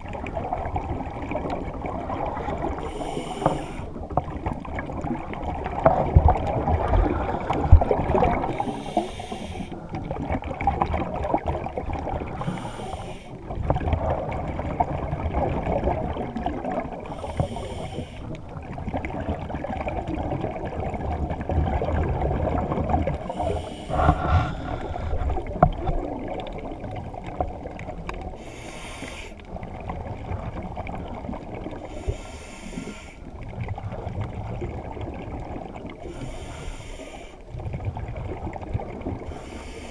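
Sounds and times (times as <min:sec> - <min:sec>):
exhaled bubbles rumbling underwater: 0:00.0 - 0:39.9
regulator inhalation hiss: 0:02.8 - 0:03.9, 0:08.6 - 0:09.8, 0:12.4 - 0:13.4, 0:17.1 - 0:18.3, 0:23.3 - 0:25.2, 0:28.4 - 0:29.4, 0:32.0 - 0:33.2, 0:36.2 - 0:37.4.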